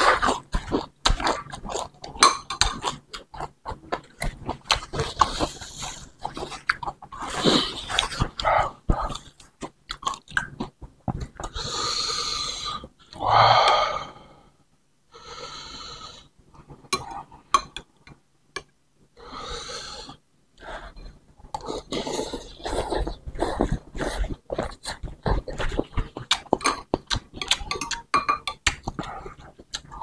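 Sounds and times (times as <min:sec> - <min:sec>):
noisy breaths: 0:11.4 - 0:16.4, 0:19.2 - 0:24.4
chewing and slurping noodles: 0:21.6 - 0:28.0
spoon and fork clicking on bowl: 0:27.4 - 0:28.6.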